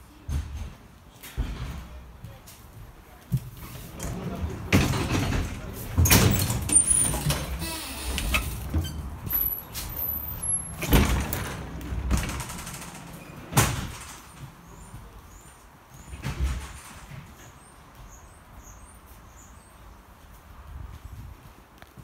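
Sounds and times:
train doors banging shut: 0:03.7 - 0:14.8, 0:16.0 - 0:17.6.

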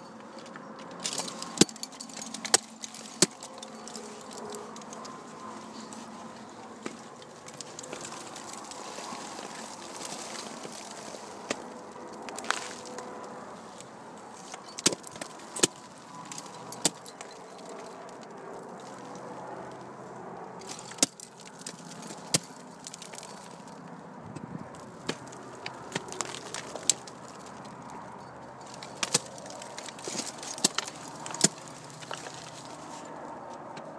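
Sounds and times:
climbing hardware clinking: 0:00.0 - 0:13.2, 0:14.2 - 0:19.3, 0:20.6 - 0:23.8, 0:24.8 - 0:32.9
ice tools striking ice: 0:01.0 - 0:04.4, 0:14.6 - 0:17.6.

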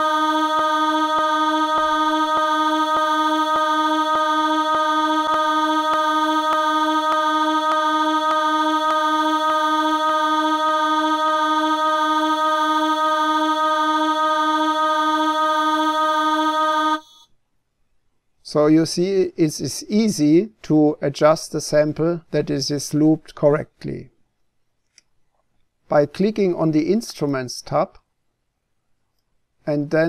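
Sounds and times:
sampled choir voice holding vowel: 0:00.0 - 0:17.2.

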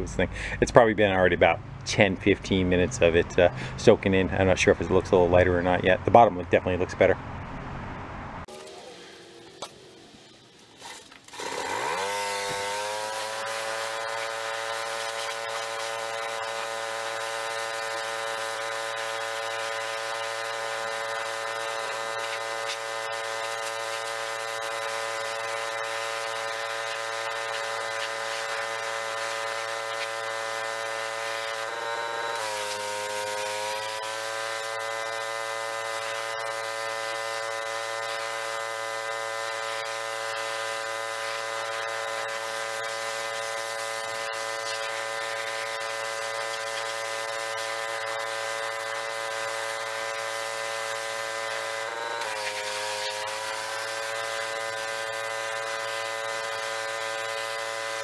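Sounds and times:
pressure washer engine running: 0:00.0 - 0:00.6, 0:01.4 - 0:06.0, 0:08.5 - 0:58.0
high-pressure spray hissing on metal: 0:12.7 - 0:18.2, 0:19.1 - 0:31.6, 0:39.4 - 0:58.0.

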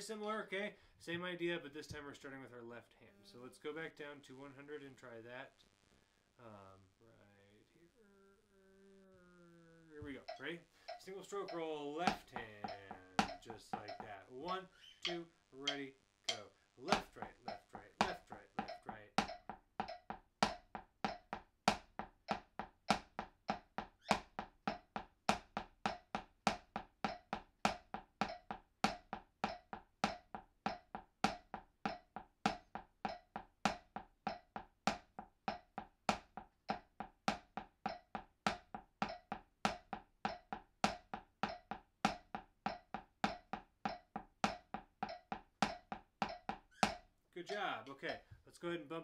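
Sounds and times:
drumsticks tapping practice pad: 0:10.0 - 0:48.2.

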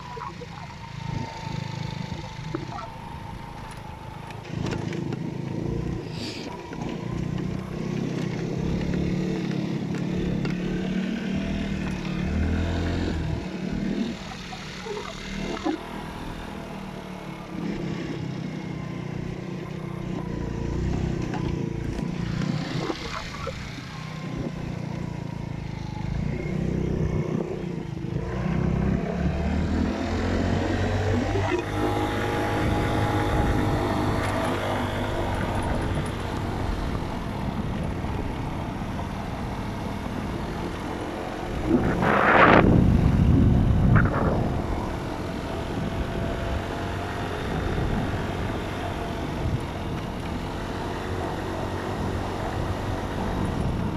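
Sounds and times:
dirt bike engine revving: 0:26.2 - 0:37.6, 0:40.3 - 0:49.6
rush of noise: 0:41.3 - 0:45.4.

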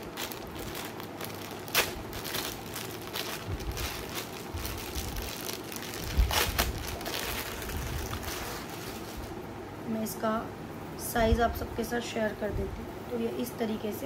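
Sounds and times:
plastic packet crinkling: 0:00.0 - 0:09.4
plastic packet ripping: 0:00.0 - 0:09.4.

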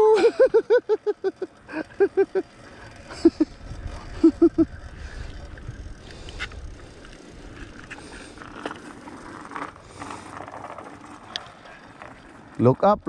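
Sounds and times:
bicycle tyre and frame noise: 0:00.0 - 0:13.0
wind rushing over microphone: 0:03.2 - 0:08.0.

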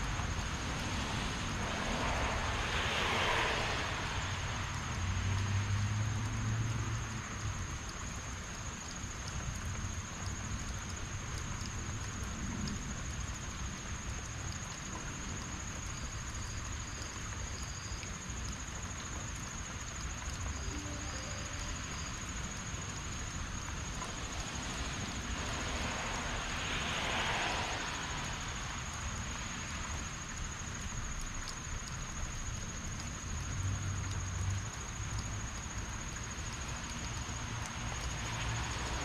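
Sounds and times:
heavy rain falling: 0:00.0 - 0:39.0
high-pitched whine: 0:20.6 - 0:22.2
rush of hiss: 0:24.2 - 0:29.8.

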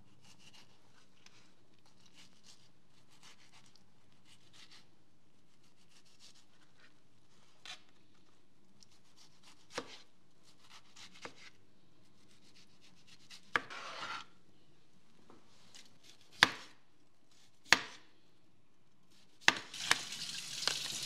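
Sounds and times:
knife slicing tomato: 0:00.1 - 0:01.1, 0:01.8 - 0:06.9, 0:08.8 - 0:14.3, 0:15.7 - 0:18.0, 0:19.1 - 0:21.0
knife scraping board: 0:13.0 - 0:14.3.

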